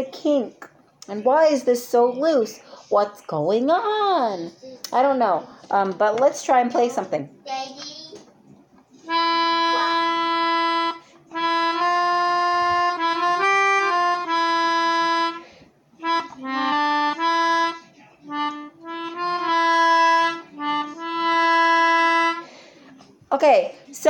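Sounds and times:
breaths: 0:02.6 - 0:03.0, 0:15.4 - 0:15.9, 0:22.4 - 0:23.2
melodica notes: 0:09.0 - 0:22.5.

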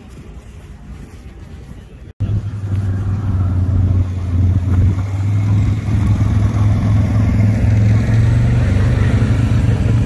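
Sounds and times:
low-pitched engine drone: 0:02.2 - 0:10.0.

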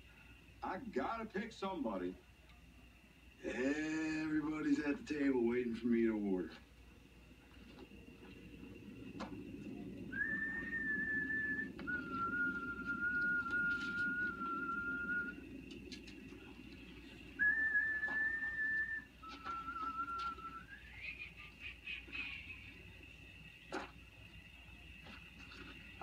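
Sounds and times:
man whistling a slow tune: 0:10.0 - 0:16.0, 0:17.3 - 0:21.2.

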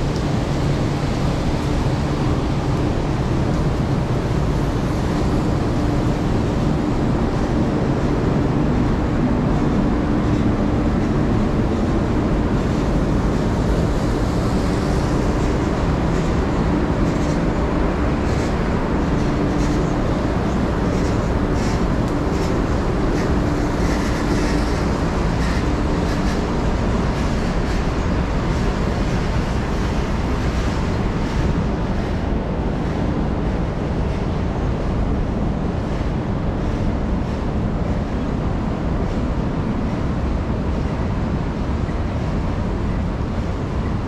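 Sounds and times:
heavy vehicle traffic rumble: 0:00.0 - 0:44.0.

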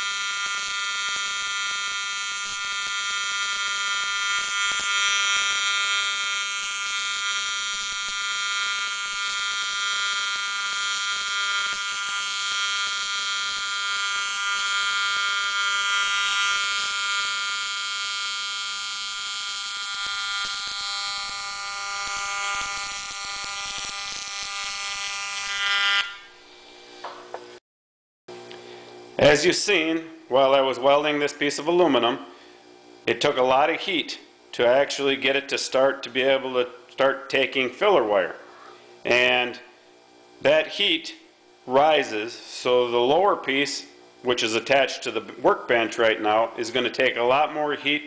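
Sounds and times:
welding arc buzzing and hissing: 0:00.0 - 0:27.6.

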